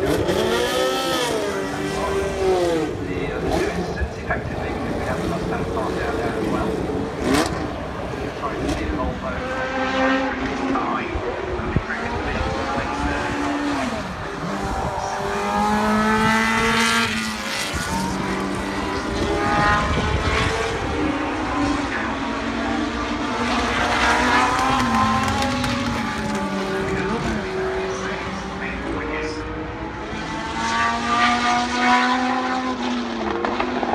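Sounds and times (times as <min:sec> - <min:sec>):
racing car engines passing: 0:00.0 - 0:33.9.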